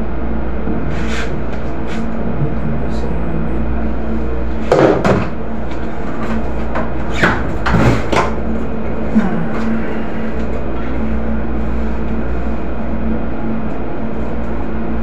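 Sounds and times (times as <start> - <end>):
ship machinery hum: 0.0 - 15.0
knocks on wooden shelving: 4.7 - 5.4.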